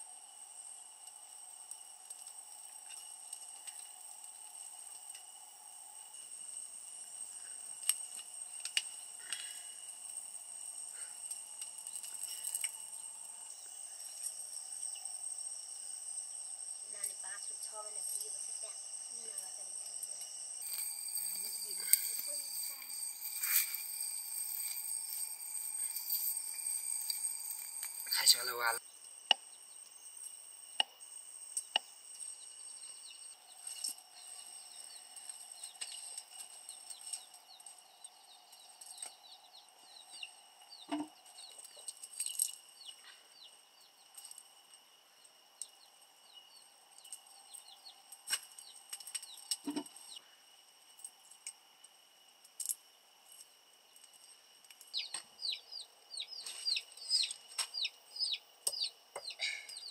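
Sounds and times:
steady high ringing tone: 18.6 - 31.6
chicks cheeping: 54.9 - 59.9.

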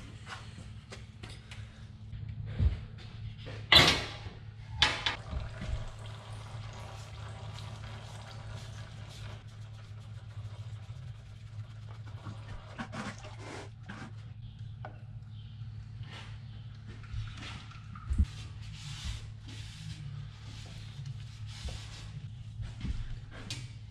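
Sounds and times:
steady low hum: 0.0 - 23.9
oil trickling: 5.2 - 13.9.

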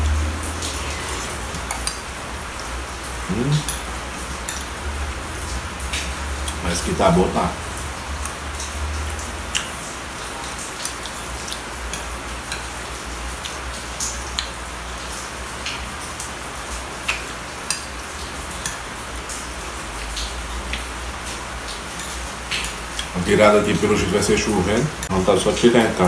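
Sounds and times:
steady rain hiss: 0.0 - 26.0.

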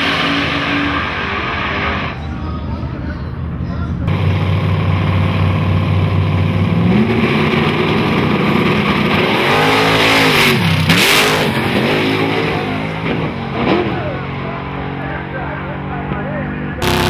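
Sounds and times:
drag racing engines accelerating: 0.0 - 17.0
loud rush of noise: 4.0 - 14.2, 16.8 - 17.0.

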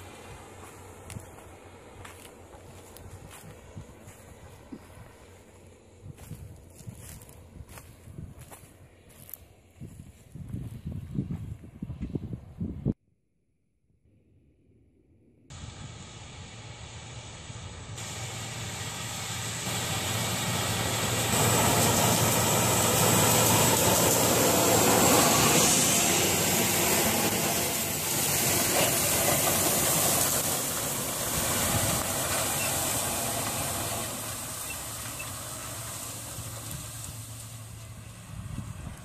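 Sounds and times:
diesel tractor engine under load: 15.6 - 39.0.

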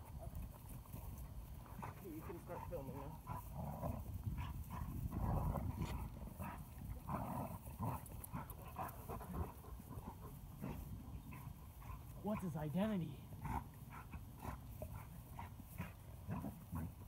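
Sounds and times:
dogs panting: 0.0 - 17.0
dogs scuffling in dry grass: 0.1 - 12.6.

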